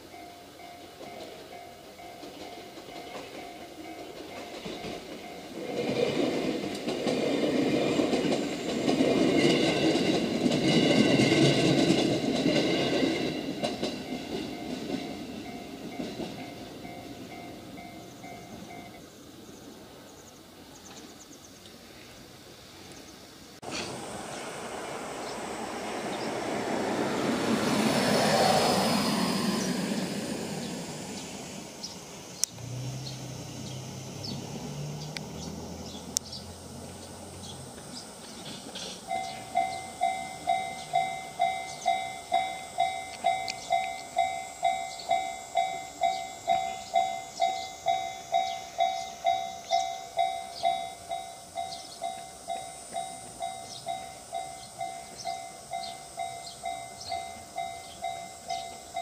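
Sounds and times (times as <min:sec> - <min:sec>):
level crossing warning bell: 0:00.0 - 0:07.1, 0:07.9 - 0:19.0, 0:38.7 - 0:59.0
train passing: 0:00.0 - 0:59.0.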